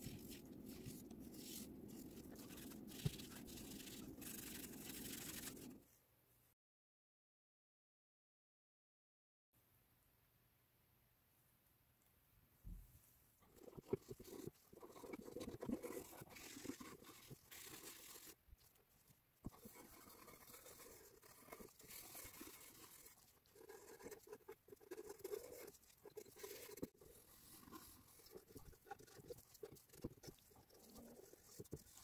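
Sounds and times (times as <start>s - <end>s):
brush scrubbing wood: 0.0s - 5.7s.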